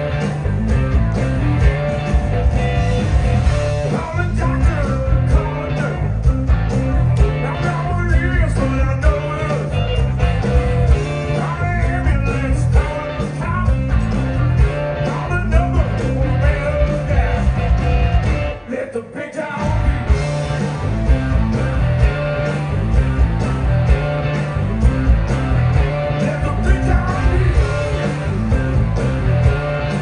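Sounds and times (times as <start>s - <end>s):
electric guitar: 0.0s - 30.0s
live blues-rock band: 0.0s - 30.0s
man singing: 3.8s - 6.2s, 7.2s - 10.0s, 11.0s - 14.0s, 15.0s - 17.6s, 18.6s - 20.0s, 26.0s - 28.4s.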